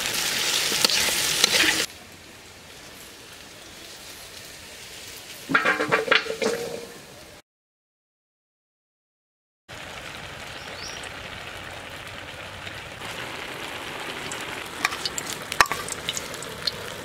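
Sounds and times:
prawns crackling in oil: 0.0 - 1.9, 9.7 - 17.0
hot oil hissing in a wok: 0.0 - 5.6, 9.7 - 17.0.

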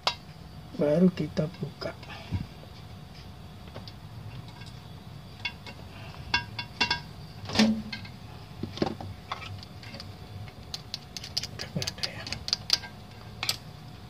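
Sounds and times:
small clicks and scrapes: 9.3 - 13.6.

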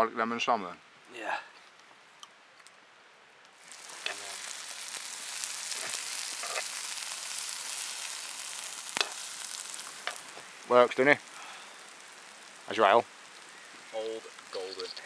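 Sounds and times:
sharp crack: 3.6 - 15.0
vegetables sizzling in a frying pan: 3.6 - 15.0.

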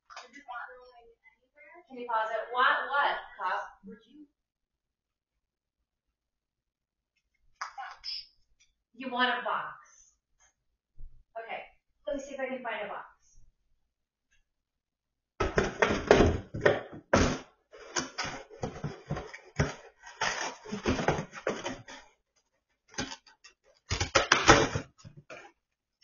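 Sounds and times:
dog tearing cardboard: 19.2 - 22.0.

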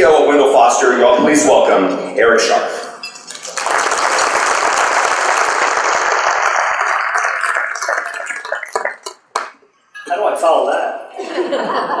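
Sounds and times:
audience applauding: 3.2 - 9.6.

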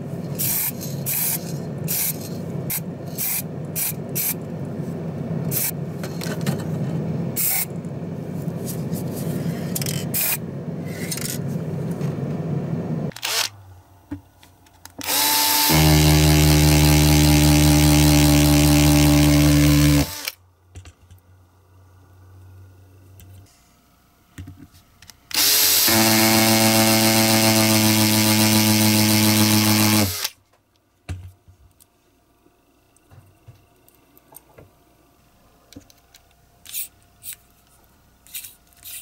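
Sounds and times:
machine hum with whine: 0.0 - 20.4.

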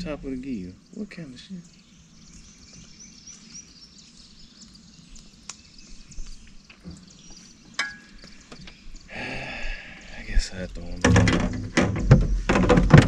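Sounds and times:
bird chirping: 0.0 - 12.8
sharp clicks or knocks: 11.0 - 13.0.

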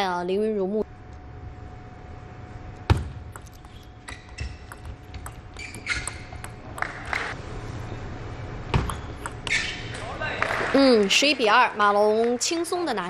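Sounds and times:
ping pong ball clicking: 3.3 - 7.3, 8.8 - 9.5.

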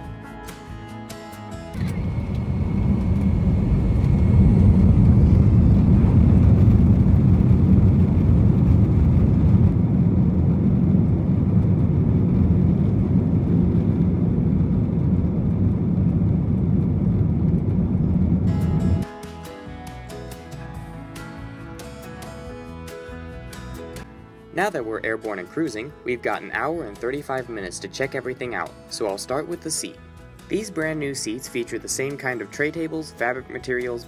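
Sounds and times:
thin high whine: 1.5 - 7.2, 16.5 - 20.7
jet engines deep rumble: 1.8 - 19.1.

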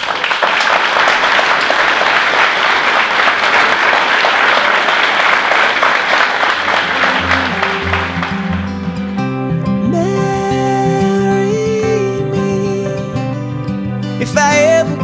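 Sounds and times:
crowd applauding: 0.0 - 10.6
soft music: 6.9 - 15.0.

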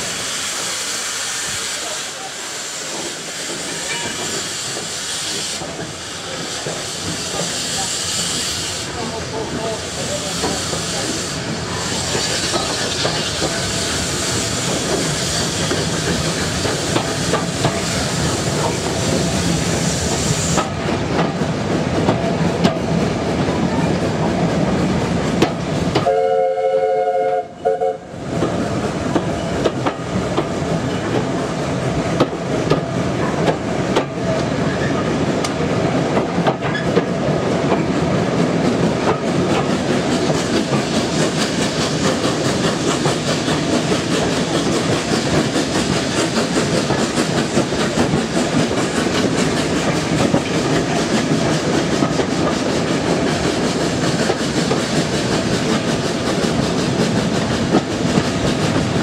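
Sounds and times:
hiss: 0.0 - 20.8, 39.2 - 59.0
train wheels clattering on track: 0.0 - 26.6, 27.3 - 59.0
train whistle chord: 26.0 - 28.0.

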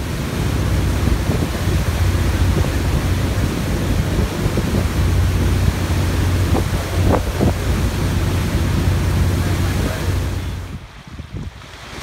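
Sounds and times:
low engine drone: 0.0 - 10.9
water rushing past boat: 0.0 - 12.0
wind buffeting microphone: 0.0 - 12.0.

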